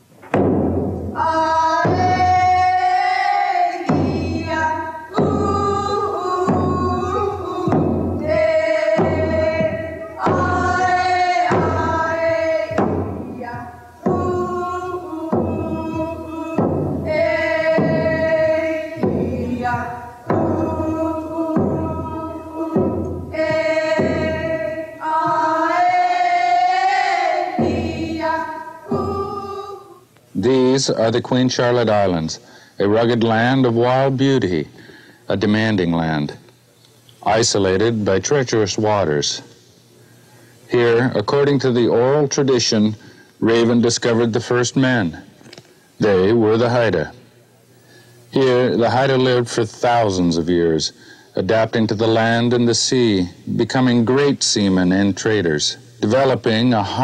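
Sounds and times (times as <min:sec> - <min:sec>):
slow heavy drum beats: 0:00.0 - 0:29.8
voices singing a chant: 0:01.1 - 0:32.0.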